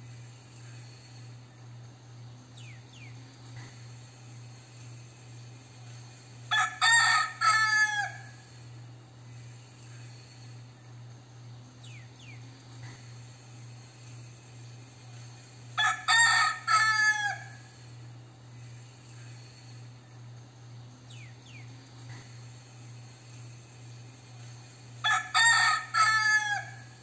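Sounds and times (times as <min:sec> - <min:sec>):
rooster crowing: 0:06.5 - 0:08.6, 0:15.8 - 0:17.8, 0:25.0 - 0:27.0.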